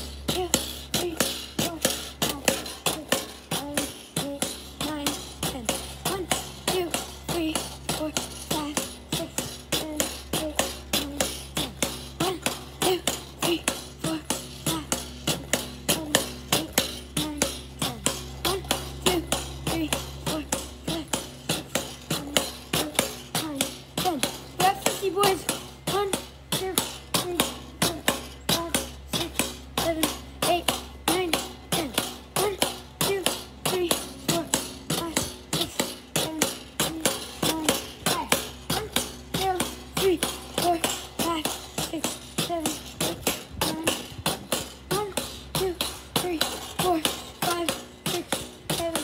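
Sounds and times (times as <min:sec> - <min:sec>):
pogo stick spring clanking: 0:00.0 - 0:49.0.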